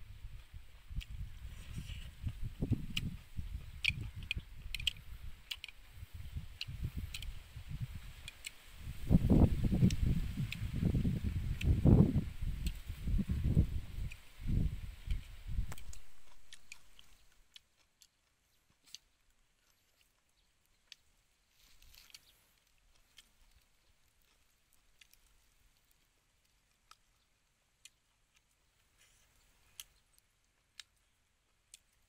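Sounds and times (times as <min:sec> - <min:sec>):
quiet chewing: 0:00.1 - 0:32.0
chopsticks clicking on a plate: 0:02.8 - 0:05.8, 0:15.1 - 0:18.2.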